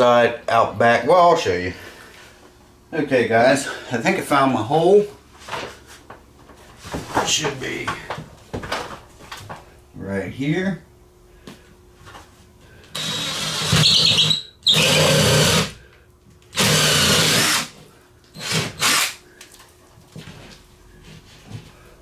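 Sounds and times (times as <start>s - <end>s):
cordless drill boring into wall: 12.9s - 15.8s, 16.5s - 19.2s.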